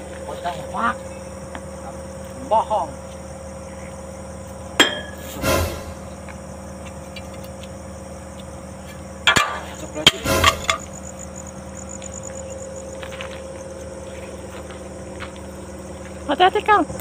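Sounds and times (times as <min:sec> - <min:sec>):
crickets chirping: 0:00.0 - 0:17.0
sharp knocks with scraping clatter: 0:04.8 - 0:06.1, 0:08.8 - 0:10.9.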